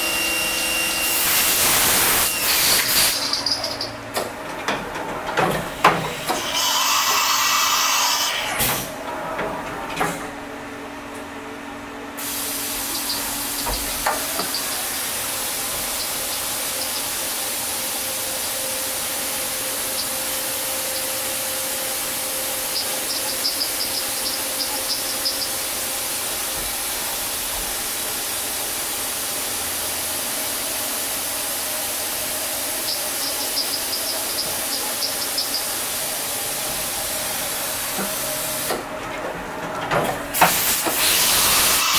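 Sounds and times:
loud burst of machine noise: 0.0 - 3.8, 40.3 - 41.9
coolant spray hiss: 1.1 - 3.6, 12.2 - 23.6, 40.3 - 41.9.

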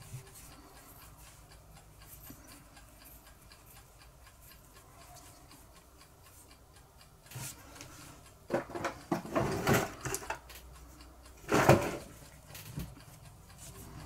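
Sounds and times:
faint steady ticking: 0.0 - 14.0
metal canister scrapes and knocks: 8.5 - 10.2, 11.5 - 12.1.

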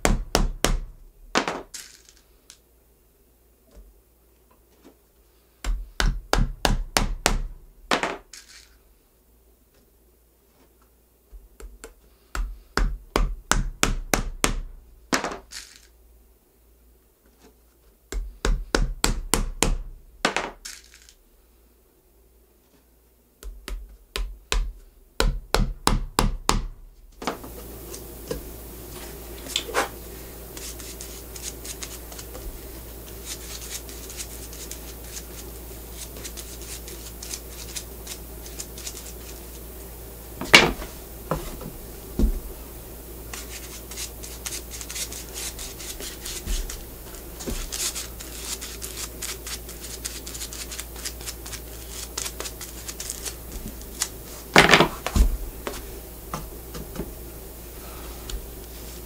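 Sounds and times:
machine humming: 27.2 - 49.9.

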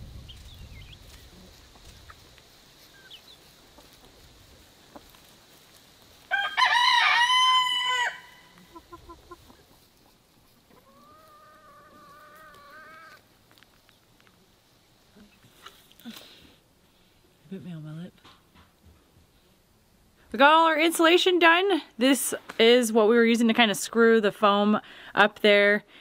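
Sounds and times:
chicken clucking: 0.3 - 4.3, 8.5 - 13.2
rooster crowing: 6.3 - 8.6.

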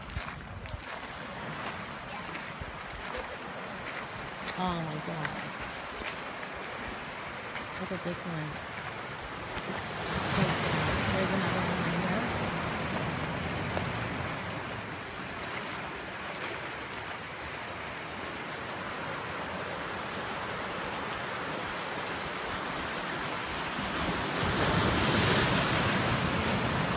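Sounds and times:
surf breaking on rocky shore: 8.4 - 17.1, 18.3 - 26.9
wave crashing: 9.4 - 15.9, 19.9 - 26.9.

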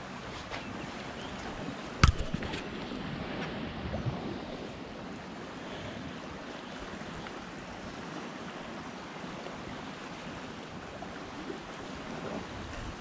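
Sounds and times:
waves lapping against bank: 0.0 - 13.0
wind: 0.0 - 13.0.

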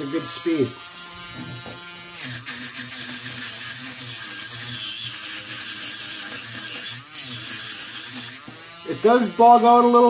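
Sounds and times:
rotary tool motor hum: 0.0 - 10.0.

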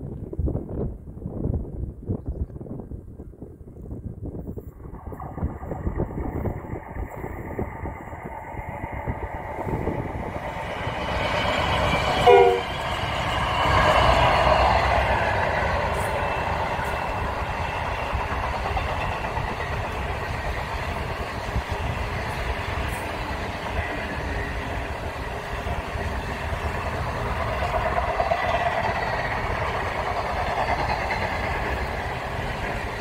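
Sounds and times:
train locomotive rumble: 0.0 - 33.0
train wheels clattering on rail: 4.7 - 33.0
train horn blast: 12.2 - 12.8.

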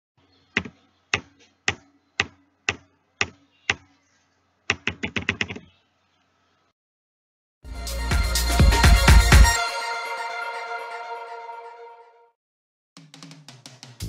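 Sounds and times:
keyboard typing: 4.7 - 5.6.

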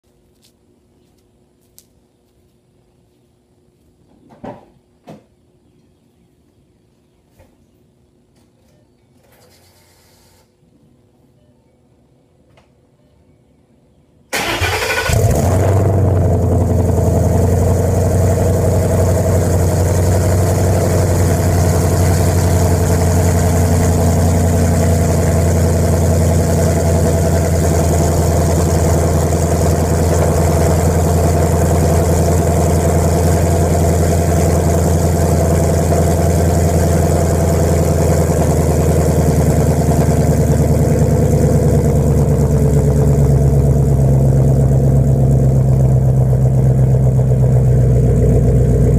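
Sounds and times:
car engine idling burble: 14.4 - 48.9.

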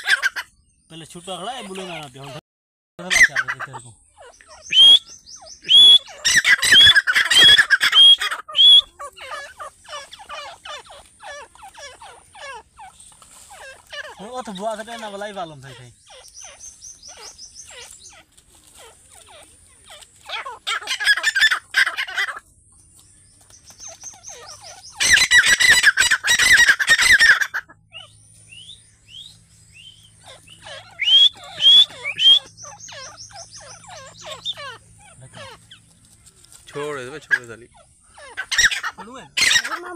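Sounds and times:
francolins calling: 0.0 - 2.4, 3.0 - 39.9.

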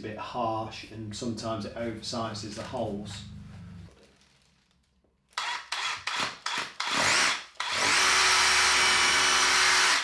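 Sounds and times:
hammer drill boring into brick: 5.4 - 10.0.

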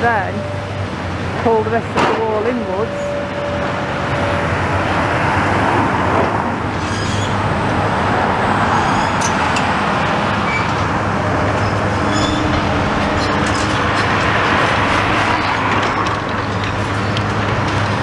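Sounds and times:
excavator diesel engine running: 0.0 - 18.0
road traffic passing: 0.0 - 18.0.

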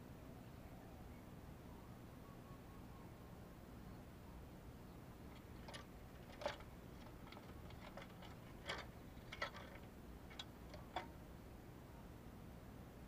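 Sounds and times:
faint taps and clicks in a cage: 5.3 - 11.2.

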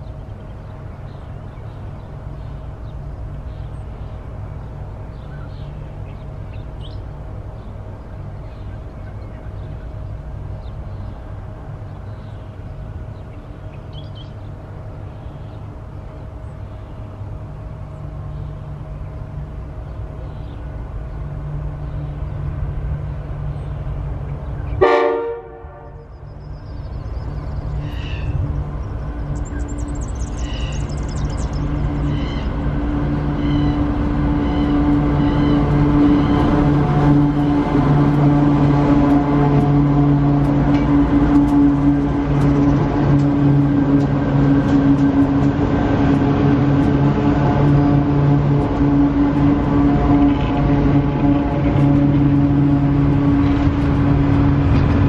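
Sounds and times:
small birds chirping: 0.0 - 24.8, 26.1 - 36.6
distant freight train rumble: 0.0 - 55.0
locomotive horn blast: 24.7 - 26.3, 32.2 - 55.0.

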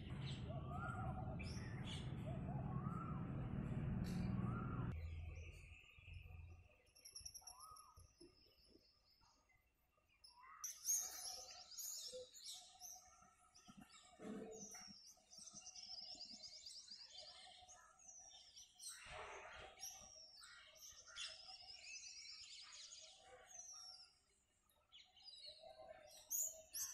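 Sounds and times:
birds chirping and twittering: 0.0 - 26.9.

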